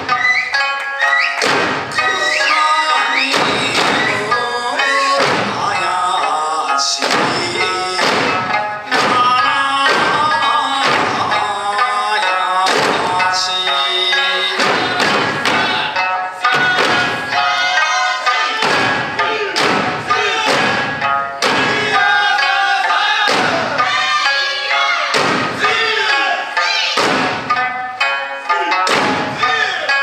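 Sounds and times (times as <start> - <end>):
plucked lute: 0.0 - 30.0
barrel drums thudding: 1.4 - 2.4, 3.3 - 5.9, 7.0 - 11.9, 12.6 - 13.8, 14.4 - 17.6, 18.6 - 22.3, 23.3 - 24.2, 25.1 - 25.9, 27.0 - 28.1, 28.8 - 29.6
man singing: 2.0 - 17.4, 18.2 - 20.7, 21.5 - 23.8.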